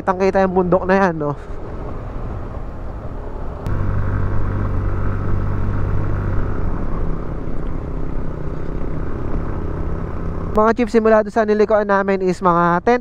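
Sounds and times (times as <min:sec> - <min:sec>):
road and wind rumble: 0:00.0 - 0:13.0
scooter engine cruising: 0:01.4 - 0:10.6.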